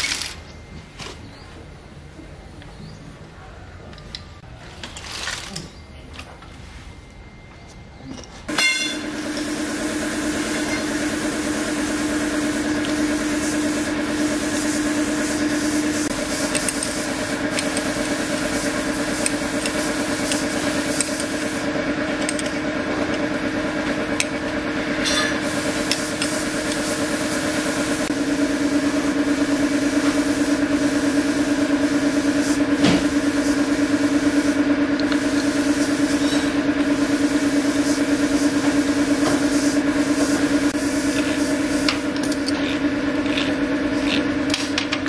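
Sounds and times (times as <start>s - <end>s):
small motorcycle engine idling: 8.5s - 45.0s.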